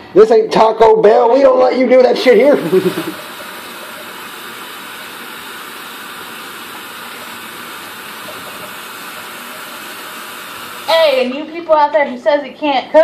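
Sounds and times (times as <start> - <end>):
faucet running into metal sink: 2.2 - 11.3.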